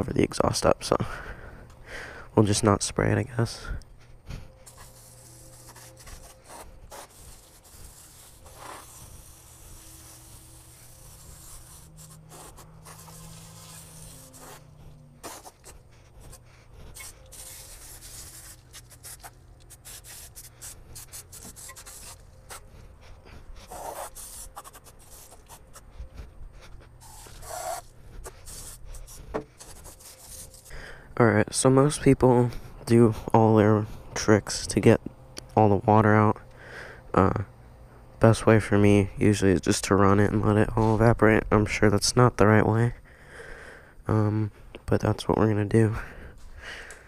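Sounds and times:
hose water spraying: 4.7 - 15.8, 16.9 - 22.6.

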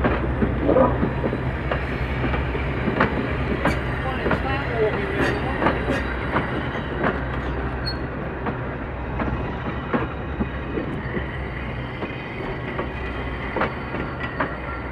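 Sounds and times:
carriage low rumble: 0.0 - 3.3
train wheels clicking over rail joints: 0.0 - 14.9.

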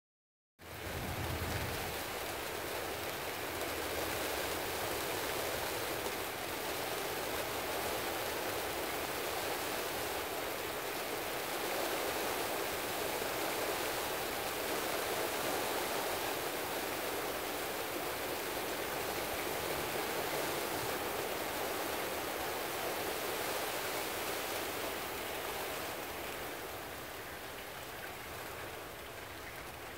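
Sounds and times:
steady rain falling: 0.6 - 29.9.

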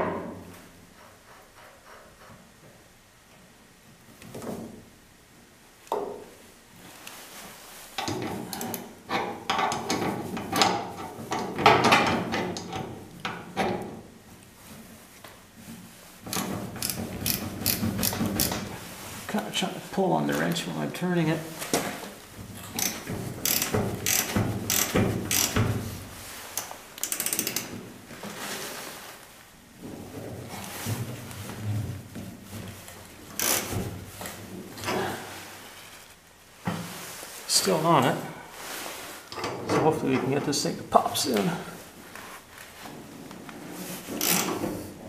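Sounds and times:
wrench clicking and rasping: 16.3 - 18.7, 22.7 - 25.7, 26.6 - 27.7, 33.4 - 33.8, 44.2 - 44.6.

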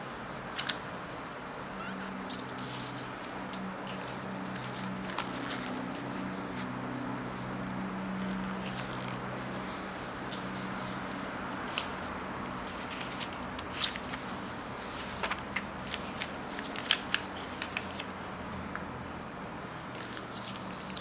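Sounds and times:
paper crackling as folded: 1.8 - 6.8, 8.1 - 18.3, 19.8 - 21.0.

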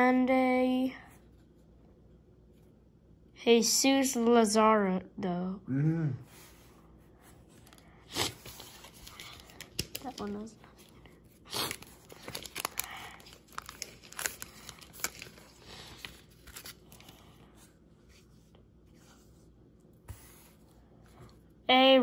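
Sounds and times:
cards being handled: 7.5 - 17.4
wrapper tearing and crinkling: 11.4 - 17.1.

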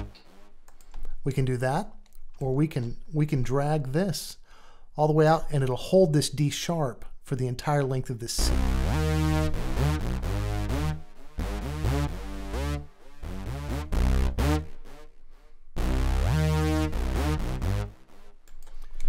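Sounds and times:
synth bass riff with gliding notes: 0.0 - 0.7, 8.4 - 18.4.

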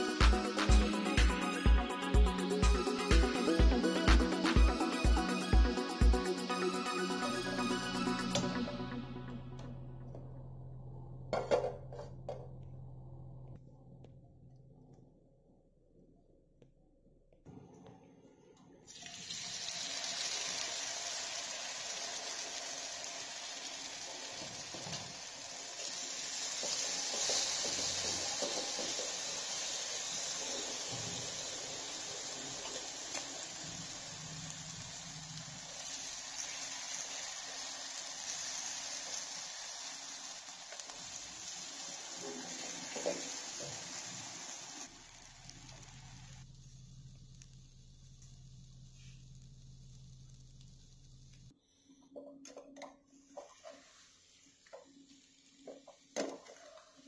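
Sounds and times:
food sizzling in hot oil: 18.9 - 51.3.

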